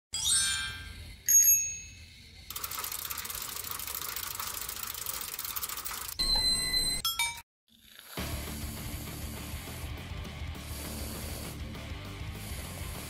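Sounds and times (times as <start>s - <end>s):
bright bell-like dings: 0.2s - 2.0s
toy train whirring on track: 1.9s - 6.2s.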